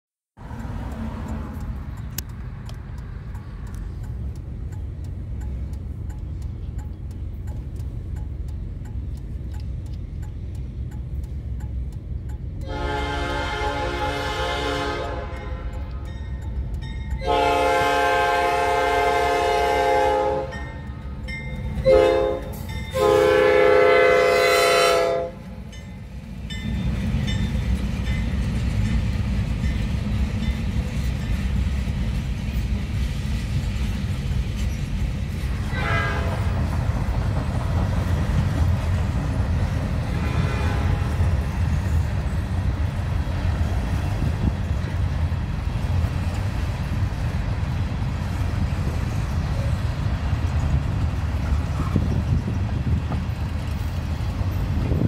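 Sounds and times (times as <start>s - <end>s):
freight cars rumbling on rails: 0.4s - 55.0s
locomotive air horn blasts: 12.6s - 16.0s, 17.2s - 20.8s, 21.8s - 25.5s, 35.6s - 36.6s, 40.1s - 41.3s.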